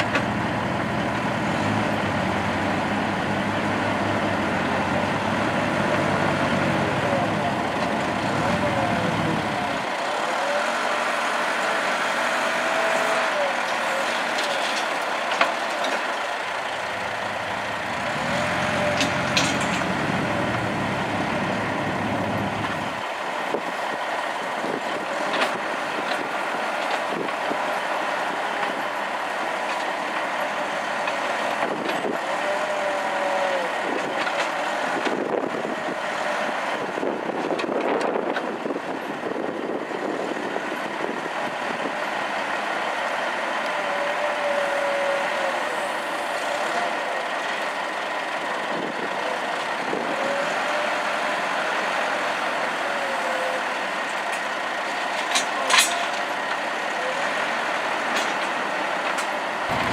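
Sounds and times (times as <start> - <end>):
loader bucket clanking: 0.0 - 24.0, 58.0 - 59.9
backhoe loader engine: 0.0 - 59.9
dump truck diesel engine running: 0.0 - 59.9.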